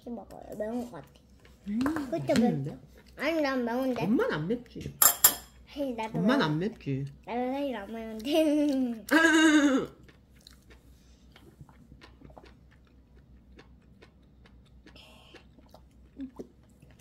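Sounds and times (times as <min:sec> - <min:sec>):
child's voice: 0:00.0 - 0:01.2, 0:02.0 - 0:04.1, 0:05.7 - 0:06.2, 0:07.2 - 0:09.1.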